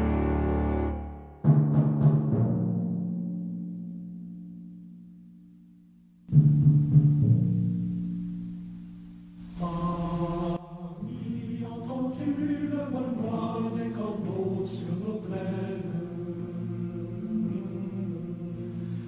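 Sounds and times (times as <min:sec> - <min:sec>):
choir singing slow chords: 0:00.0 - 0:01.3, 0:09.4 - 0:19.0.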